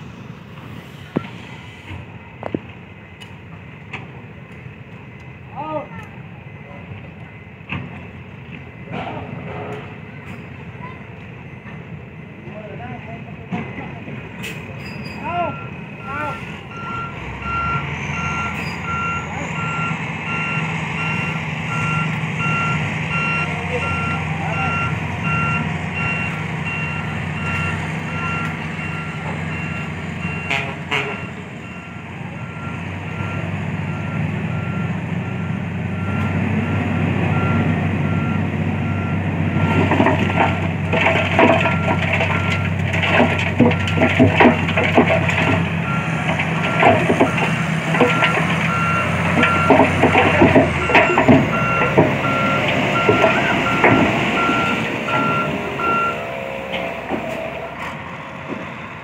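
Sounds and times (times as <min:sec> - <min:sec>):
truck engine running: 0:00.0 - 0:59.0
dirt and rock rattling out: 0:39.6 - 0:57.0
backup alarm beeping: 0:45.8 - 0:57.8.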